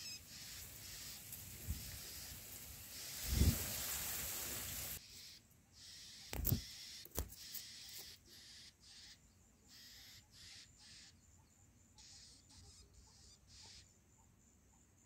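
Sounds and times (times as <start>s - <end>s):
rustling hiss: 0.0s - 5.2s
nestling birds chirping: 0.0s - 14.0s.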